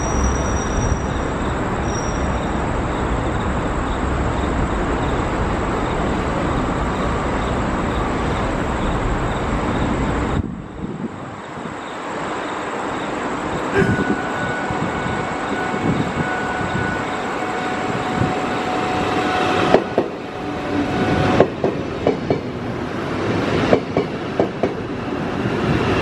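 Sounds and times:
approaching high-speed train: 0:00.0 - 0:26.0
passing traffic noise: 0:00.0 - 0:26.0.

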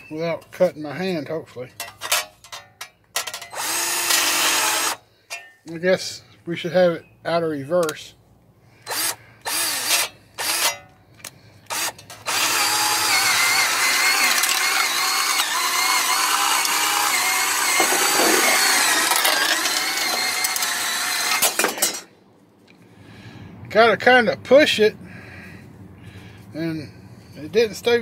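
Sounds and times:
electric drill motor: 0:03.5 - 0:05.0, 0:08.9 - 0:10.8, 0:11.7 - 0:21.6
shears cutting metal sheet: 0:11.7 - 0:22.0.

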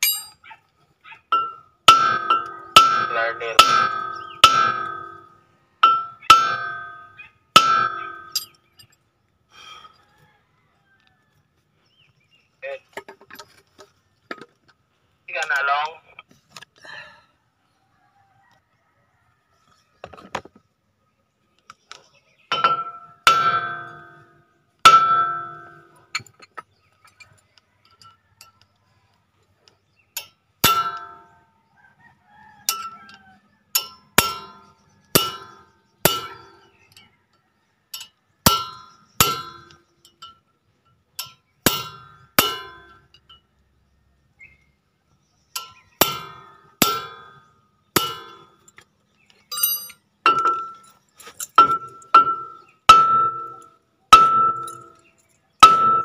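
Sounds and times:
metal strikes on brake rotor: 0:01.3 - 0:08.5, 0:22.5 - 0:26.0, 0:30.6 - 0:31.4, 0:33.8 - 0:36.7, 0:38.5 - 0:40.0, 0:41.2 - 0:43.1, 0:45.6 - 0:48.6, 0:51.6 - 0:54.9, 0:55.6 - 0:56.0.

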